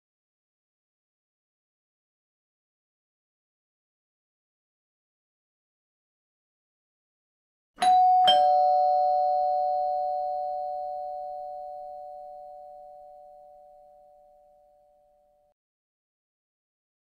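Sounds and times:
doorbell ding-dong chime: 7.8s - 15.5s.

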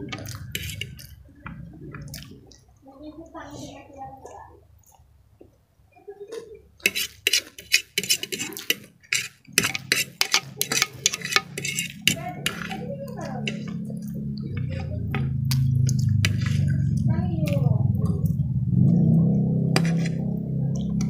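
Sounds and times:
close chewing: 0.0s - 2.8s, 6.3s - 21.0s
fork scraping ceramic plate: 0.1s - 1.1s, 6.8s - 16.9s, 19.7s - 20.3s.

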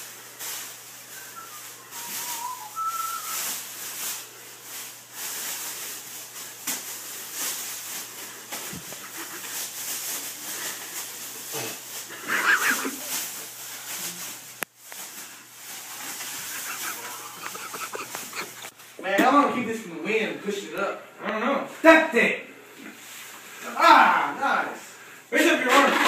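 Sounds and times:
plastic bag rustling: 0.0s - 19.0s
short faint whistle: 1.2s - 3.4s.

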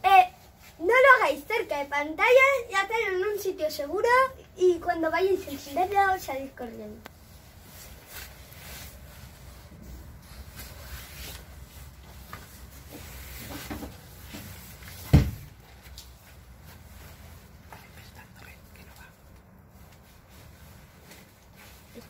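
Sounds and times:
handling and movement noises: 5.3s - 22.0s.

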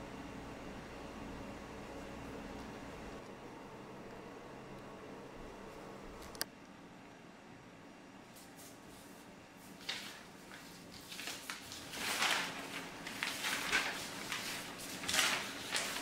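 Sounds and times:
paper rustling and crinkling: 9.6s - 16.0s.

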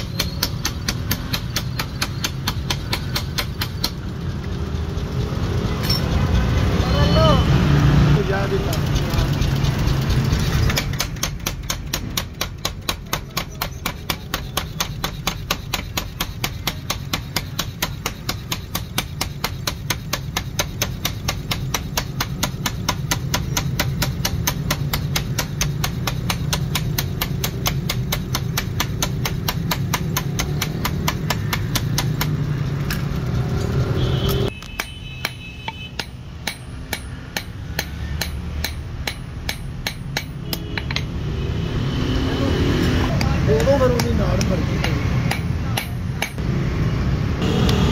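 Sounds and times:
power hammer striking steel: 0.0s - 4.0s, 8.7s - 32.5s, 34.7s - 41.2s, 43.2s - 46.5s
hand hammer on steel anvil: 0.0s - 4.1s, 8.7s - 33.1s, 34.6s - 41.2s, 43.1s - 46.4s.

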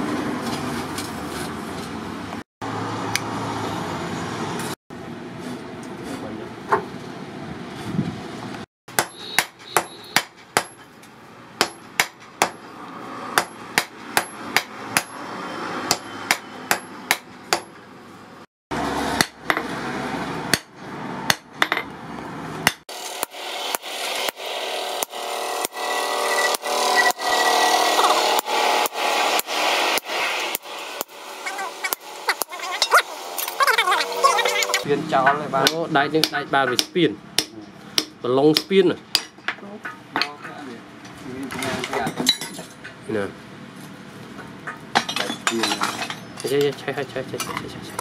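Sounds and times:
hammer striking steel on anvil: 8.9s - 10.9s, 35.2s - 40.4s.

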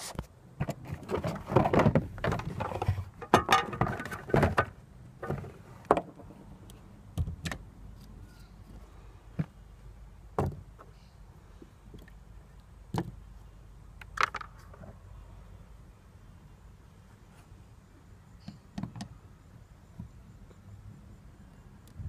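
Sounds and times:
tools set down knocks: 1.5s - 6.2s.

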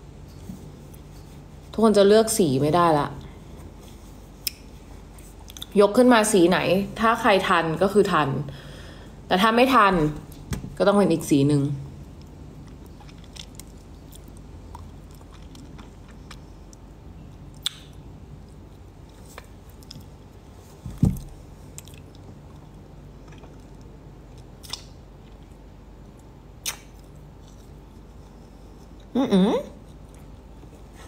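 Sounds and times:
person chewing candy: 12.6s - 20.1s, 21.7s - 25.6s
mouth smacks: 26.6s - 27.1s.

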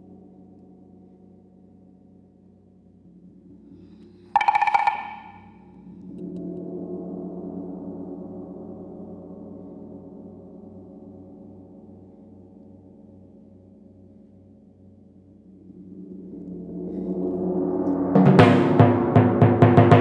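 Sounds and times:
low percussion tones ringing: 4.4s - 5.6s.

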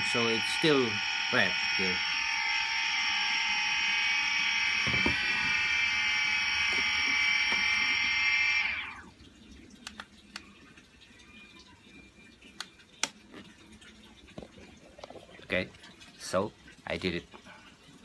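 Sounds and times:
drone motors whining: 0.0s - 9.1s.

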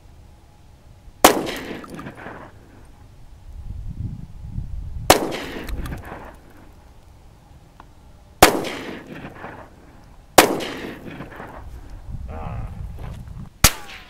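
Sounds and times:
pistol shots with echo: 1.2s - 2.5s, 5.1s - 6.4s, 8.4s - 9.8s, 10.4s - 11.6s, 13.6s - 14.0s.

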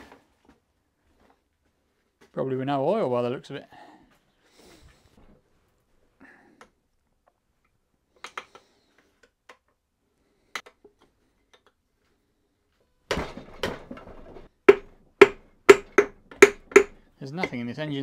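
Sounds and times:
metal knocks: 13.1s - 17.6s.

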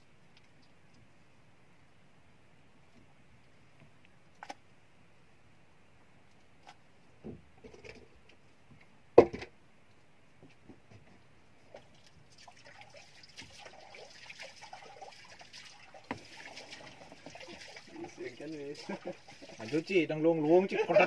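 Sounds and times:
water lapping around a boat: 11.6s - 20.6s.

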